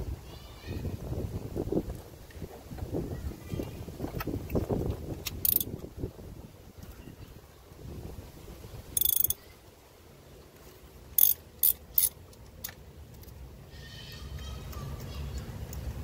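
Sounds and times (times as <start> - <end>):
ratchet wrench clicking: 5.2 - 5.8, 9.0 - 9.4, 11.2 - 12.8.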